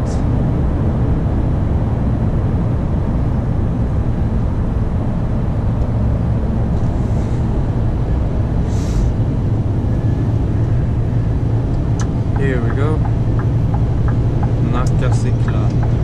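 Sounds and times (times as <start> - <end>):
road and tyre noise: 0.0 - 16.0
truck diesel engine running: 4.9 - 16.0.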